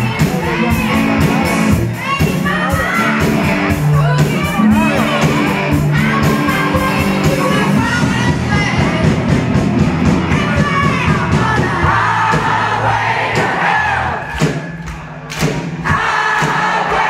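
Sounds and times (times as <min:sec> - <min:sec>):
electric guitars: 0:00.0 - 0:10.4
crowd noise: 0:00.0 - 0:17.0
drums: 0:00.0 - 0:17.0.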